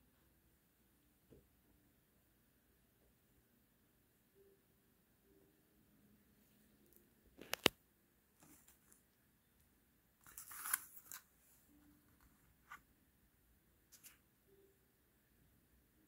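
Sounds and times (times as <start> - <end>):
card rustling: 8.4 - 9.0, 10.2 - 12.8, 13.9 - 14.2.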